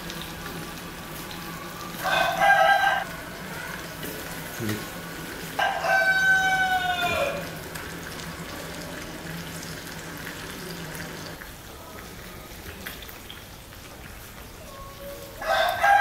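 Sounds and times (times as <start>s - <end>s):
rooster crowing: 2.0s - 3.9s, 5.6s - 7.6s, 15.1s - 16.0s.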